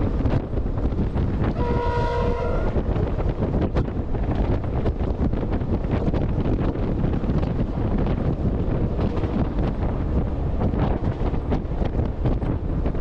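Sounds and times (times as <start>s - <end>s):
moving train rumble: 0.0s - 13.0s
wind buffeting microphone: 0.0s - 13.0s
locomotive horn blast: 1.5s - 2.9s.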